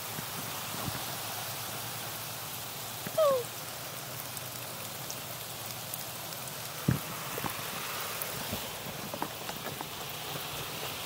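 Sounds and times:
steady rain: 0.0s - 11.0s
water drips: 0.0s - 11.0s.

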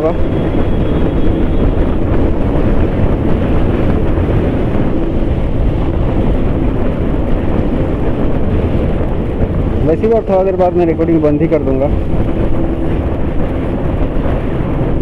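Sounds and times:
motorcycle engine: 0.0s - 10.3s
road noise on wet road: 0.0s - 15.0s
wind rush on microphone: 0.0s - 15.0s.

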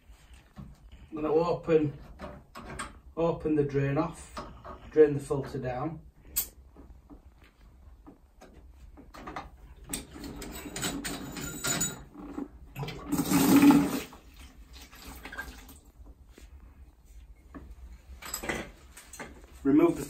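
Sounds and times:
water pouring into plastic bucket: 12.8s - 15.9s.

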